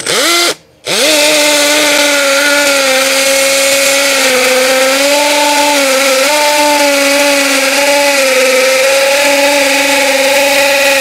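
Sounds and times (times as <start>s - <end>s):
hammer drill boring into concrete: 0.0s - 11.0s.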